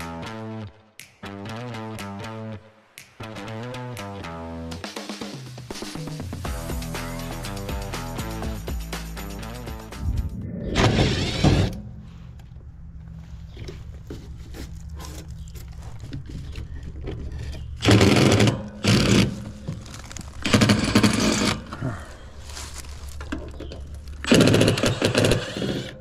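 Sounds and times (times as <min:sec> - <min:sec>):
steady low hum: 0:09.6 - 0:23.0
power driver buzzing: 0:10.0 - 0:12.0.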